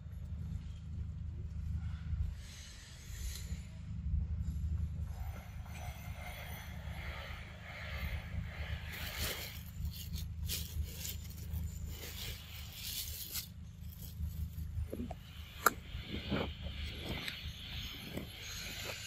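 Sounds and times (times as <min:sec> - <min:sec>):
steady low rumble: 0:00.0 - 0:19.0
rustling and scraping: 0:05.0 - 0:19.0.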